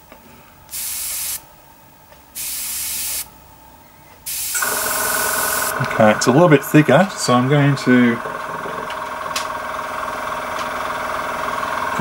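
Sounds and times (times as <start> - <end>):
airbrush spraying hiss: 0.7 - 1.4, 2.4 - 3.3, 4.3 - 5.8.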